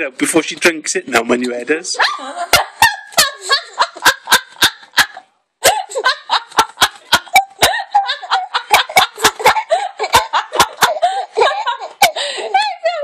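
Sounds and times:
baby giggling and laughing: 5.7s - 13.0s.

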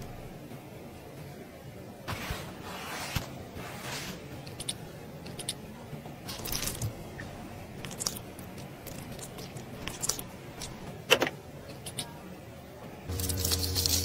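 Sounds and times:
low electric hum: 0.0s - 14.0s
wet gel crackle: 7.8s - 10.8s.

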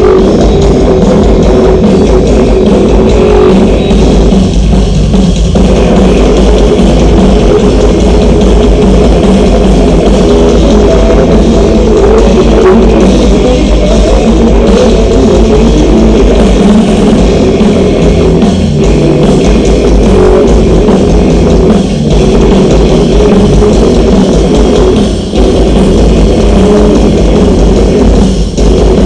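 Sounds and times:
drum kit playing: 0.0s - 29.0s
electric guitar: 0.0s - 29.0s.

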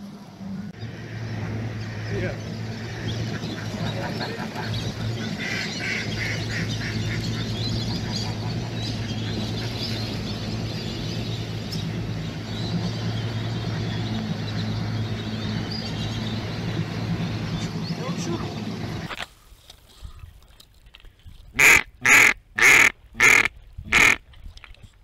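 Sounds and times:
boat motor humming: 0.0s - 19.2s, 21.5s - 24.2s
ducks quacking and honking: 1.3s - 10.9s, 21.6s - 24.2s.

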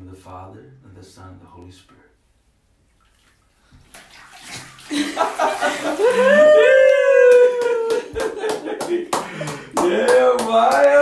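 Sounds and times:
bathwater splashing: 2.8s - 10.0s
person cheering: 5.7s - 11.0s.

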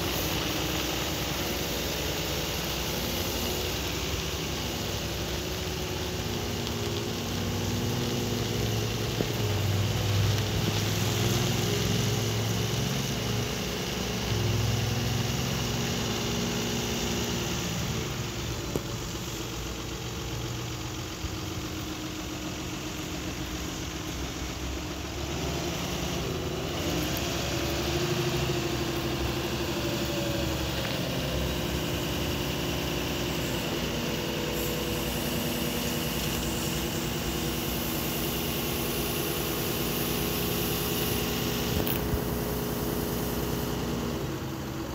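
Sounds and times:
wheel loader diesel engine running: 0.0s - 44.9s.

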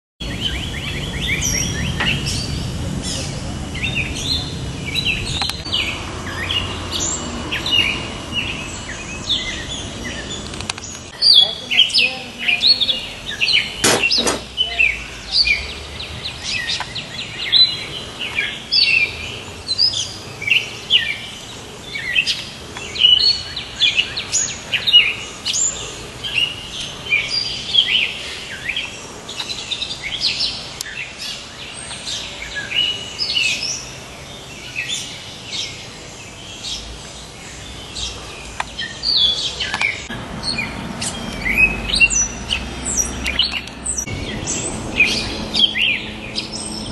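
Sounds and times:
songbirds chirping: 0.2s - 46.9s.

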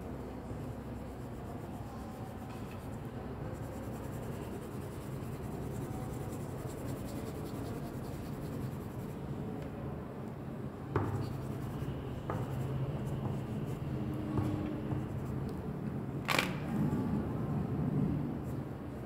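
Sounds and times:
crayon scratching on paper: 0.6s - 9.2s.

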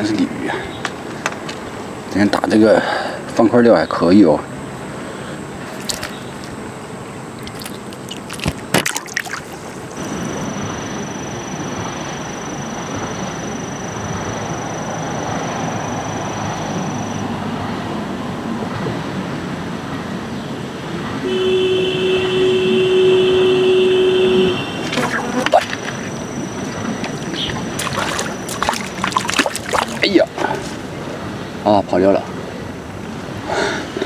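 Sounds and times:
rushing outdoor background noise: 0.0s - 34.0s
faint high whine: 3.3s - 17.4s, 21.2s - 30.4s.

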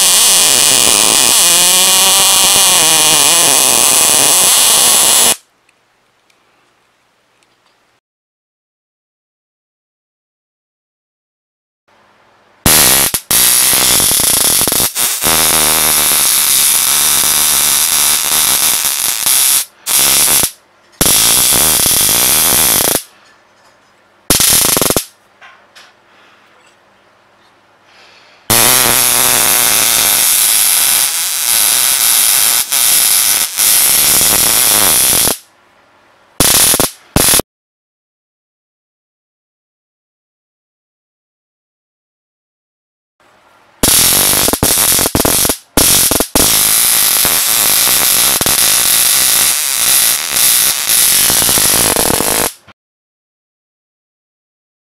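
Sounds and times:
electric arc buzzing and crackling: 0.0s - 5.5s, 12.6s - 23.1s, 24.3s - 25.2s, 28.5s - 35.5s, 36.4s - 37.4s, 43.8s - 52.7s.

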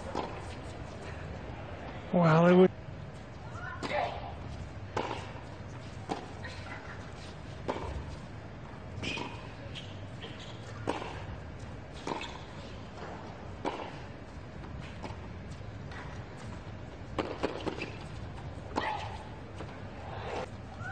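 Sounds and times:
low background hum: 0.0s - 20.9s
racquets hitting tennis ball: 17.1s - 19.2s.

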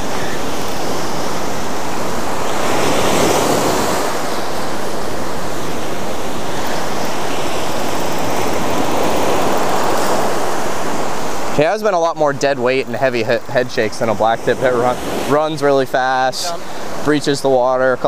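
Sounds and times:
ocean surf breaking: 0.0s - 18.0s.

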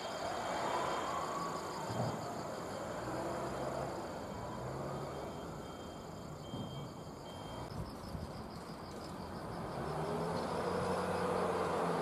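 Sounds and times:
electric train rolling past: 0.0s - 7.3s
insects chirping: 0.0s - 12.0s.

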